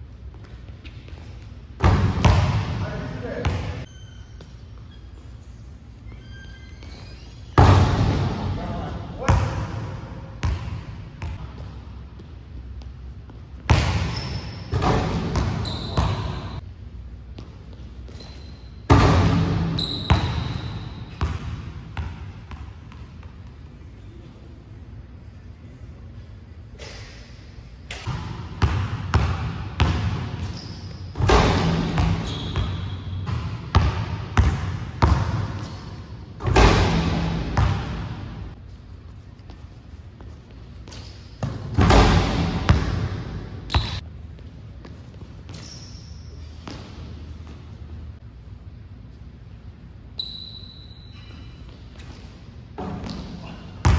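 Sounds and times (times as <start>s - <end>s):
basketball bouncing on gym floor: 0.3s - 4.9s, 6.2s - 16.6s, 17.2s - 23.6s, 27.9s - 38.6s, 39.4s - 45.8s, 51.9s - 53.9s.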